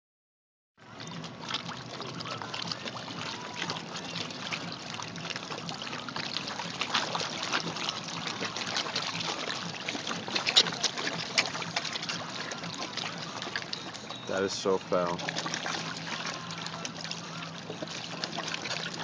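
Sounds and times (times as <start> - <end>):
fish slurping at water surface: 0.8 - 19.0.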